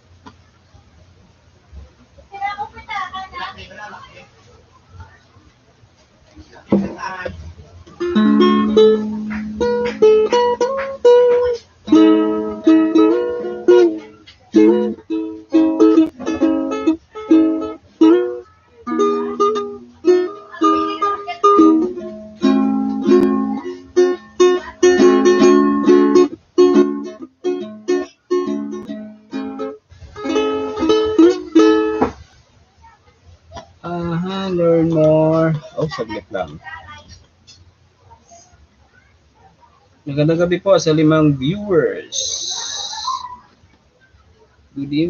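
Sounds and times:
ukulele strumming chords: 6.7s - 32.2s, 33.6s - 36.6s, 40.2s - 43.2s.

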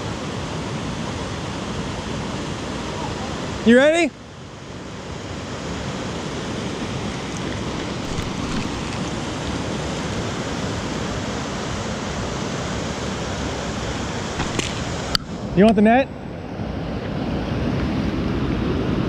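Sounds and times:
river rushing over rapids: 0.0s - 19.0s.

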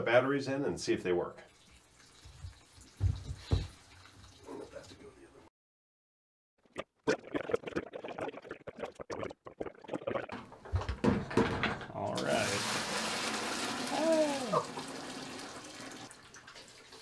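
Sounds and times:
water sloshing and splashing: 1.5s - 5.0s.

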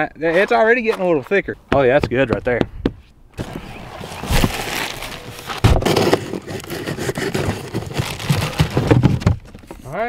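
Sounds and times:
cardboard scraping and rustling: 3.4s - 9.9s.

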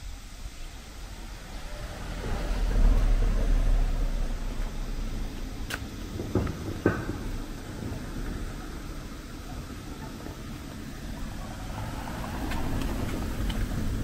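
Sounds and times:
car driving past: 0.9s - 5.7s, 10.7s - 14.0s.

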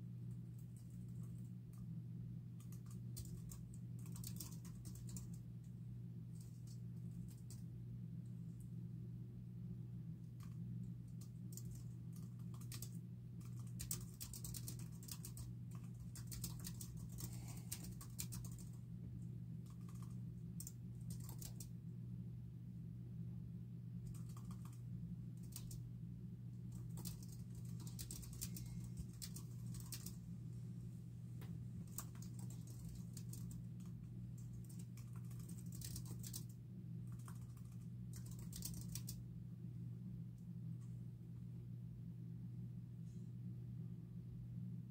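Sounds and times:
low hum: 0.0s - 44.9s
keyboard typing: 2.6s - 5.4s, 11.2s - 18.8s, 19.6s - 21.7s, 24.0s - 24.8s, 25.4s - 25.8s, 26.7s - 30.2s, 31.9s - 36.5s, 37.1s - 39.2s.

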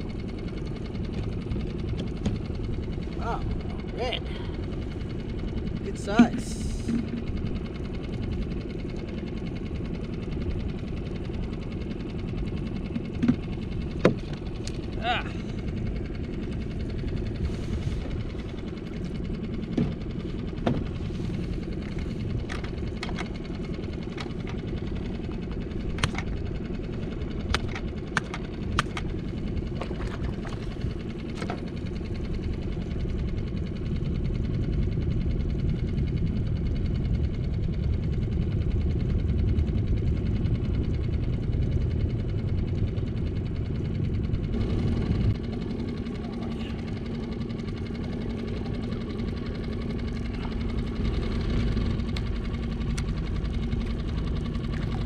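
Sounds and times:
steady low rumble: 0.0s - 55.0s
gear clicking and knocking: 21.7s - 32.6s.

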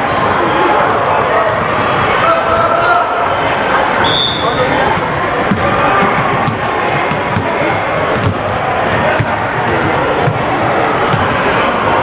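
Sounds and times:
spectator chatter: 0.0s - 12.0s
sneakers squeaking on court: 3.9s - 12.0s
basketball bouncing on wood floor: 5.0s - 7.5s, 8.1s - 10.5s, 11.1s - 11.3s.

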